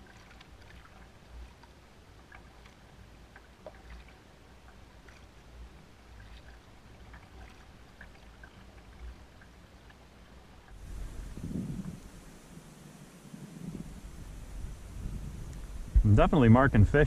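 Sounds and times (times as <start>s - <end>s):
paddle splashing in water: 0.0s - 16.0s
low rumble: 10.7s - 17.0s.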